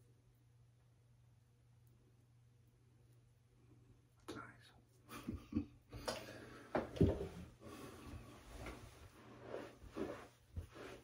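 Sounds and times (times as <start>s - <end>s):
towel rustling and dabbing: 7.1s - 11.0s.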